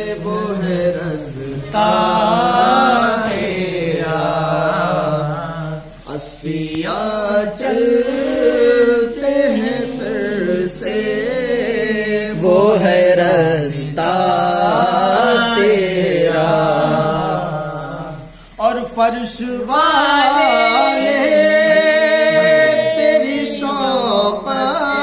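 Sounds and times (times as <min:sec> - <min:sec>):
man chanting unaccompanied: 0:00.0 - 0:25.0.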